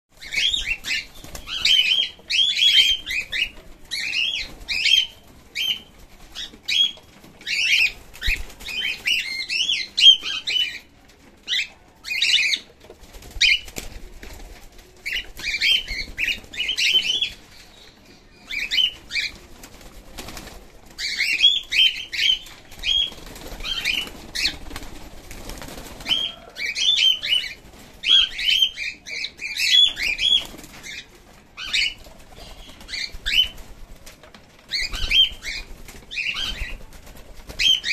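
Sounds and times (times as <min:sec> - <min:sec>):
cockatiels chirping: 0:00.2 - 0:10.8, 0:15.0 - 0:17.4, 0:34.7 - 0:36.8
wings flapping: 0:00.2 - 0:11.0, 0:12.5 - 0:17.7, 0:18.6 - 0:28.9, 0:29.8 - 0:37.9.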